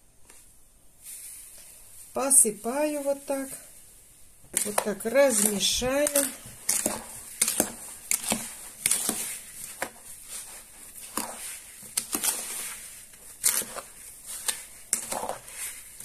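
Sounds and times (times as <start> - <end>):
spoon scraping plastic bowl: 4.5 - 16.0.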